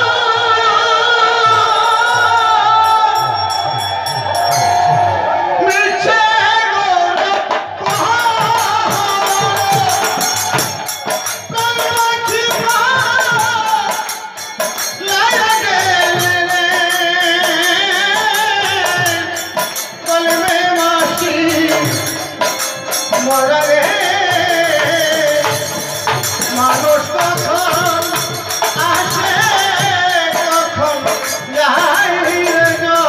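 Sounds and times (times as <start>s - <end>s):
percussion strokes: 0.0s - 6.2s, 7.2s - 33.0s
harmonium: 0.0s - 33.0s
men singing: 0.0s - 33.0s
barrel drum: 7.1s - 33.0s.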